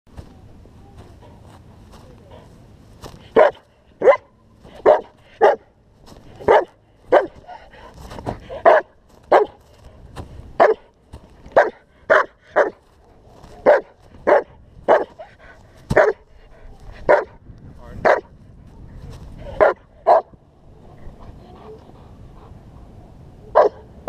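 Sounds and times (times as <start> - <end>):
dog barking: 3.4 - 5.7, 6.4 - 7.4, 8.6 - 9.6, 10.6 - 10.9, 11.6 - 12.8, 13.6 - 15.2, 15.9 - 16.2, 17.1 - 17.4, 18.1 - 18.3, 19.6 - 20.3, 23.5 - 23.9.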